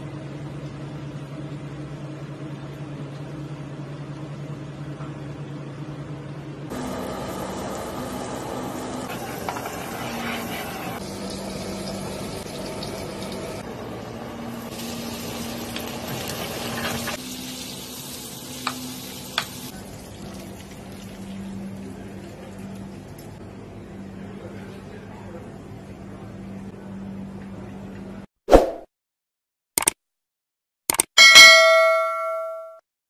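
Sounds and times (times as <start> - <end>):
food frying in butter: 6.7 - 13.6, 14.6 - 23.2
sharp clicks: 29.8 - 30.0, 30.9 - 31.2.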